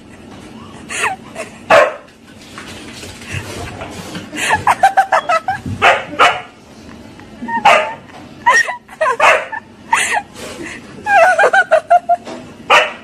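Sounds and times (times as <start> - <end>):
dog barking and yipping: 1.7 - 2.1, 5.8 - 6.5, 7.6 - 8.0, 9.2 - 9.6, 12.7 - 13.0.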